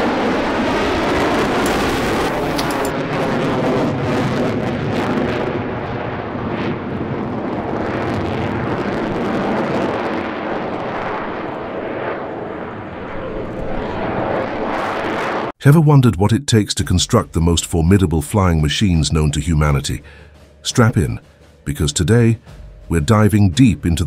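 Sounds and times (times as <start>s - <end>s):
fighter jet engine roar: 0.0s - 15.6s.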